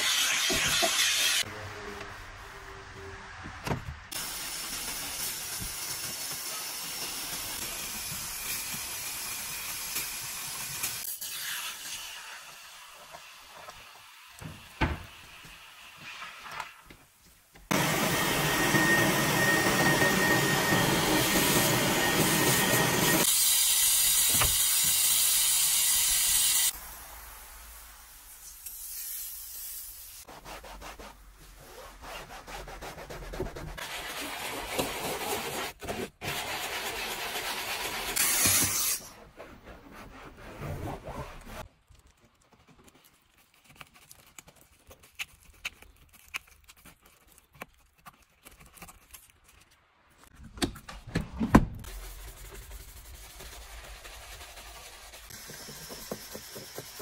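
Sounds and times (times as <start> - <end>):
rubbing and wiping: 30.2 - 41.7, 51.9 - 57.0.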